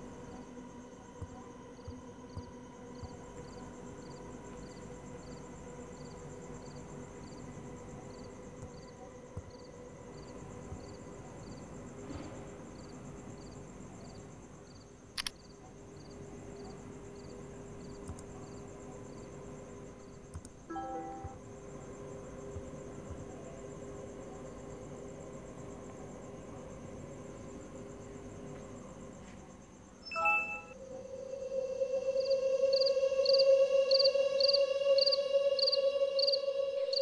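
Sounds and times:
crickets chirping: 0.0s - 37.0s
faint steady hum: 0.0s - 37.0s
insect trill: 0.0s - 37.0s
laptop keys clicking: 15.2s - 15.4s.

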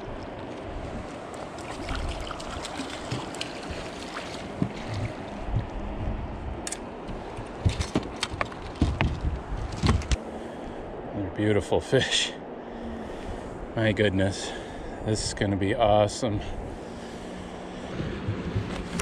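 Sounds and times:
river water rushing: 0.0s - 5.5s
wind: 0.0s - 19.0s.

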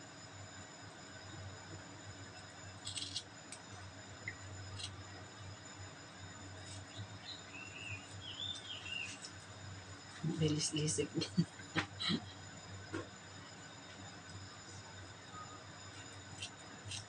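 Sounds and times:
faint high chirps: 15.2s - 15.8s.

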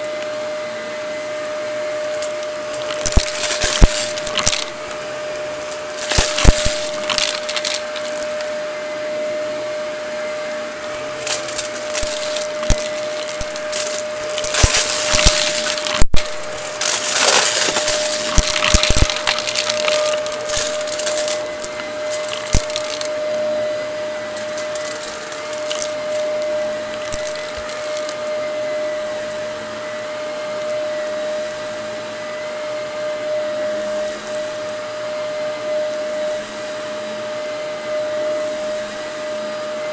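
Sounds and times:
upright vacuum cleaner running: 0.0s - 39.9s
debris rattling through vacuum: 2.2s - 5.0s, 5.7s - 8.5s, 11.2s - 23.1s, 24.3s - 28.3s.

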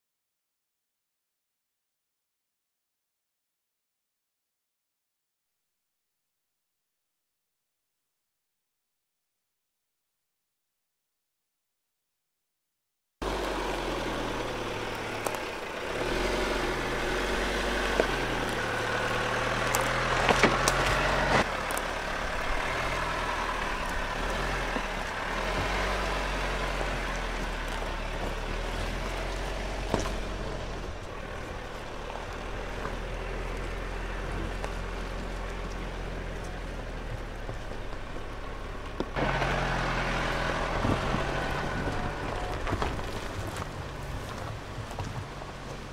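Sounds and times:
car engine running: 13.2s - 45.9s
tyres crunching over stones: 13.2s - 45.9s.

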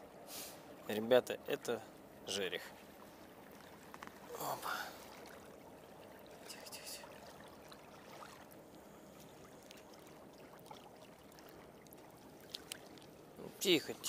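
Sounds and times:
small waves lapping: 0.0s - 14.0s
soft clicks handling fish: 3.5s - 4.2s, 11.8s - 13.1s.

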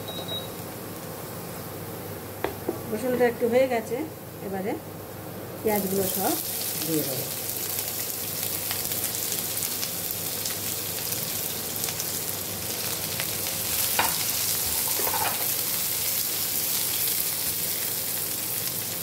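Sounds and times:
onions sizzling in hot oil: 5.4s - 19.0s
wooden spatula scraping pan: 14.7s - 15.5s.

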